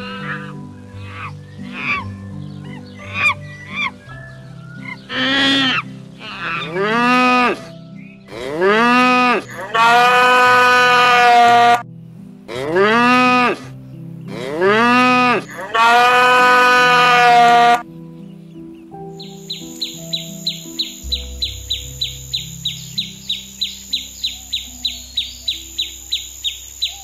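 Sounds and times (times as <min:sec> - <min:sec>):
cattle mooing: 0:05.3 - 0:07.7, 0:08.3 - 0:11.8, 0:12.5 - 0:13.7, 0:14.3 - 0:17.8.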